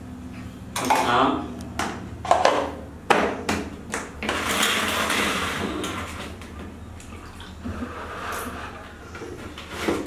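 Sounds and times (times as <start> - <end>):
water sloshing in a basin: 4.4 - 10.0.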